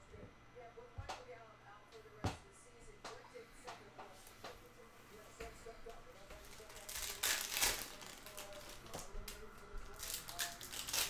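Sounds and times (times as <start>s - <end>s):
foil wrappers crinkling: 5.9s - 11.0s
foil pack tearing open: 6.4s - 9.1s, 9.9s - 11.0s.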